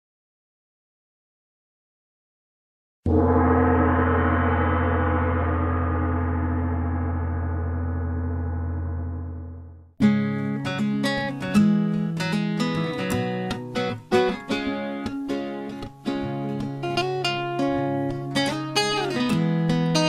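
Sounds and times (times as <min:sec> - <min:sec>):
gong ringing: 0:03.1 - 0:09.7
strummed acoustic guitar music: 0:10.0 - 0:20.0.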